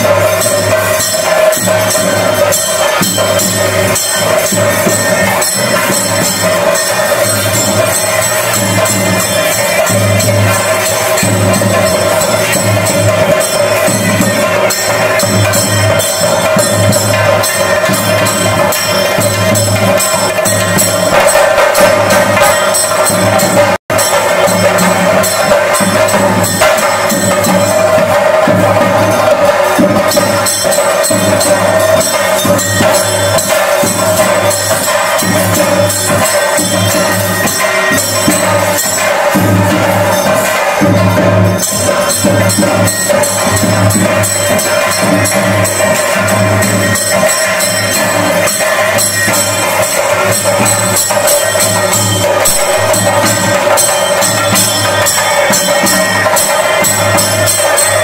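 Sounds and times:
rapid drumming: 0.0 - 58.0
ringing jingling cymbals: 0.0 - 58.0
steady held tone: 49.8 - 56.3.

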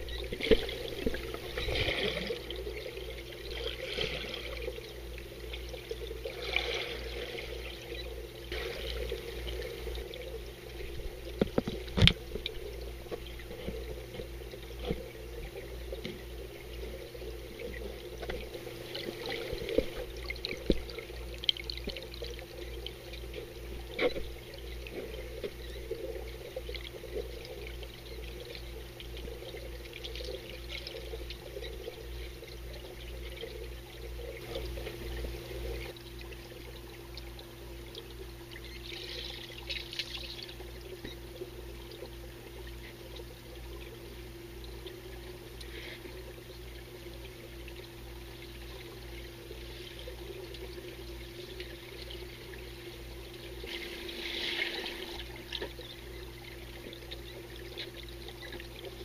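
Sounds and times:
bubbling bursts: 0.0 - 36.0
underwater water churning: 0.0 - 59.0.

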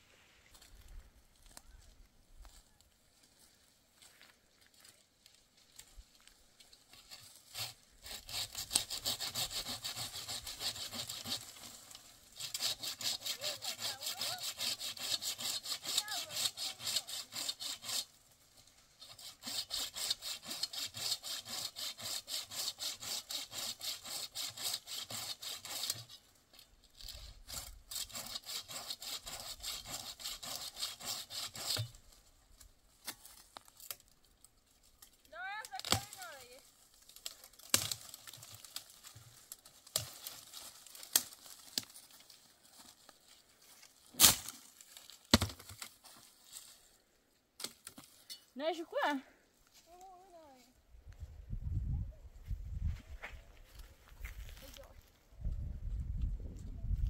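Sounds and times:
hand saw cutting branch: 6.9 - 34.1, 35.0 - 42.9, 43.8 - 46.7.

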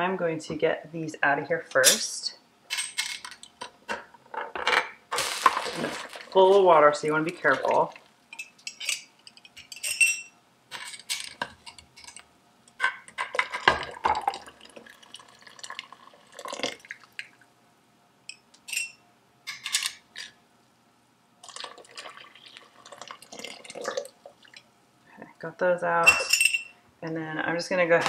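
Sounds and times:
glass clinking against metal: 8.4 - 10.3, 26.0 - 26.8.

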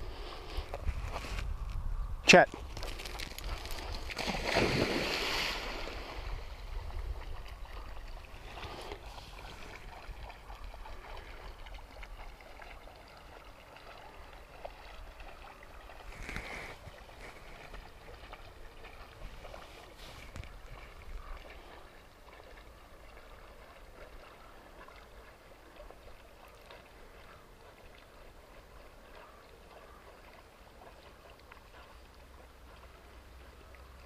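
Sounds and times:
wind rumble on microphone: 0.0 - 5.0, 5.8 - 11.8
faint water noise: 0.0 - 34.0
dog splashing into water: 2.7 - 19.8.

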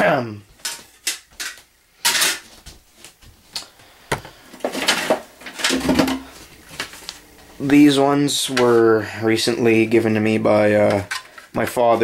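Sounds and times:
metal plates clinking and scraping: 0.6 - 2.5.

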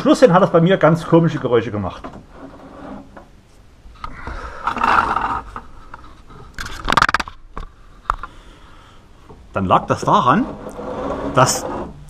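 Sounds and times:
car window winding scrape: 2.2 - 3.2, 10.3 - 12.0.

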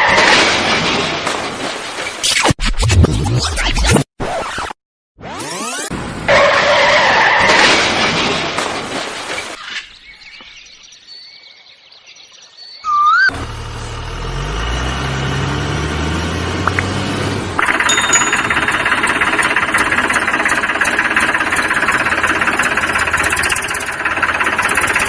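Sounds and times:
bird chirps: 9.6 - 13.3
loud noisy engine: 13.3 - 25.0.

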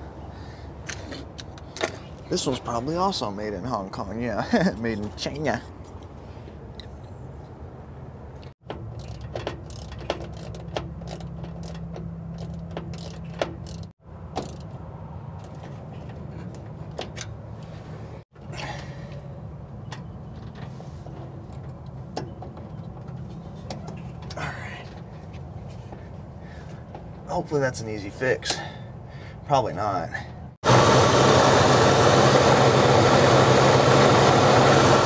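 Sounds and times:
metallic clicks of hand tools: 8.8 - 14.7.

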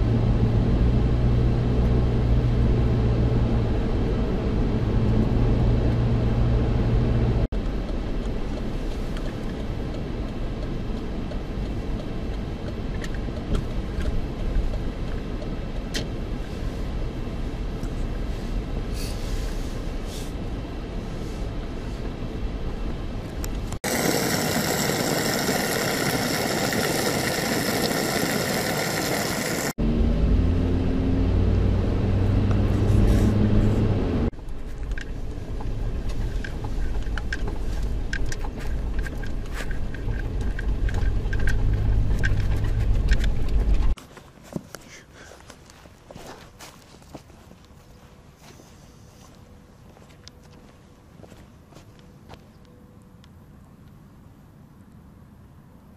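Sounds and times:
car engine: 0.0 - 44.0
low engine hum: 0.0 - 44.0
road noise: 0.0 - 55.9.

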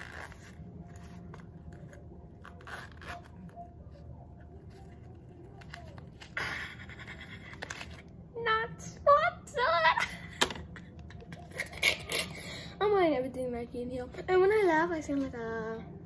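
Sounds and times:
pouch being unzipped: 0.0 - 4.0.

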